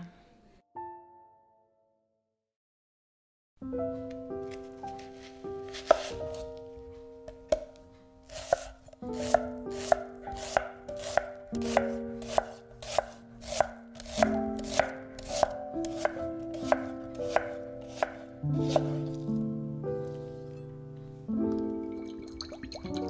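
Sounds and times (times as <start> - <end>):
background music: 3.6 - 23.0
knife slicing onion on board: 5.7 - 6.5, 7.4 - 19.4.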